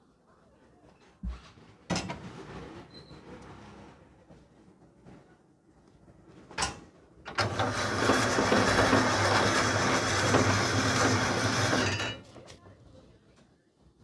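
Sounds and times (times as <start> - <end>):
blade shaving ice: 7.4 - 12.2
ice-shaving machine humming: 7.4 - 12.2.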